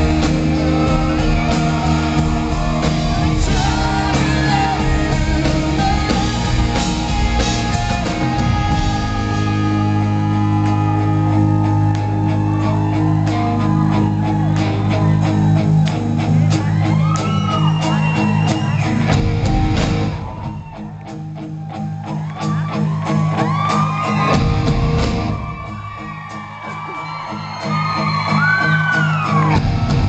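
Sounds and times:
man singing: 0.0 - 11.9
rock band playing: 0.0 - 30.0.

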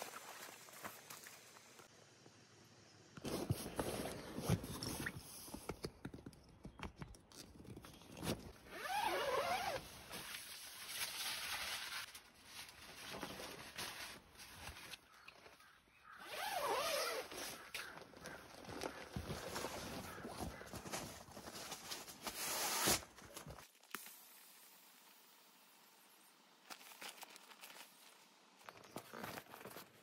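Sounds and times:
zipper pulled: 8.0 - 10.2, 16.2 - 17.8, 22.2 - 23.1.

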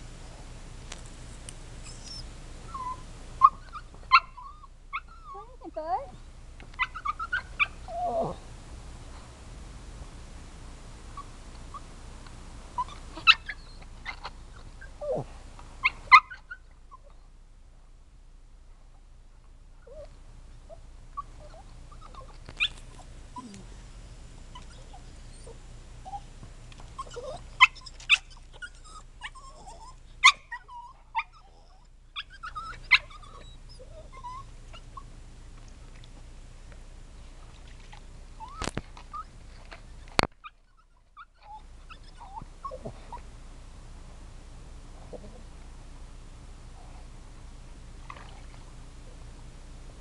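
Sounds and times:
dogs whimpering and whining: 1.8 - 6.0, 6.8 - 8.4, 12.8 - 17.2, 19.8 - 20.1, 20.7 - 35.1, 38.4 - 43.3.

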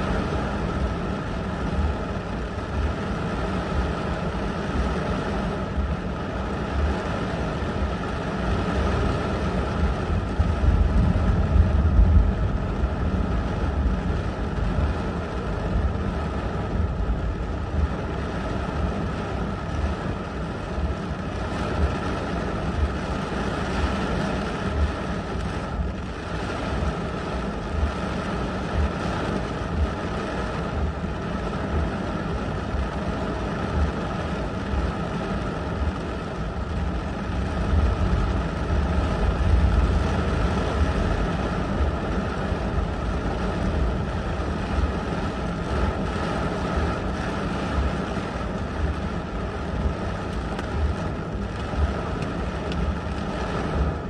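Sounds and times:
heavy rain on car windshield: 0.0 - 54.0
wind gusts buffeting: 0.0 - 54.0.

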